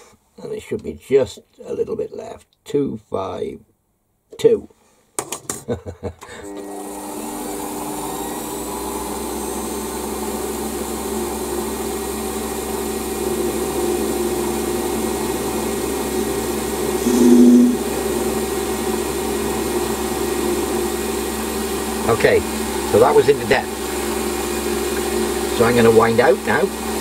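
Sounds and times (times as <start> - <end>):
high cutting tone: 16.9 - 18.2.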